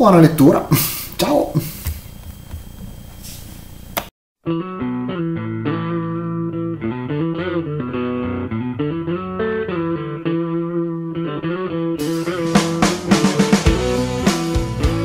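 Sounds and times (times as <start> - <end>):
plucked guitar: 4.4 - 15.0
held bass notes: 4.5 - 15.0.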